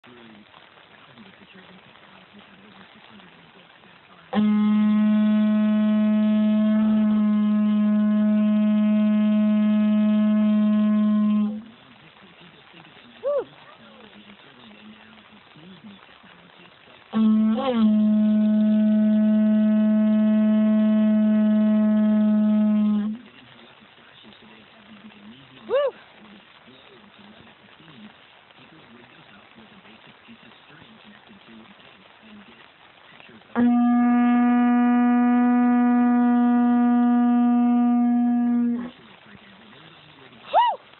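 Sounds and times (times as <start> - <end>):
conch shell horn blown: 4.3 - 11.8, 17.1 - 23.4, 33.6 - 39.0.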